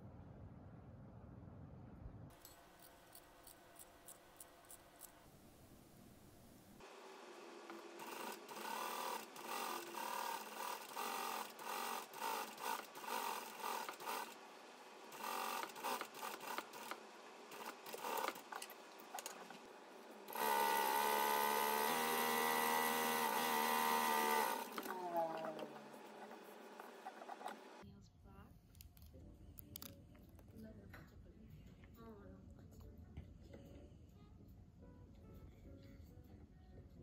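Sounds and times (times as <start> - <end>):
sewing machine stitching: 6.9 - 27.8.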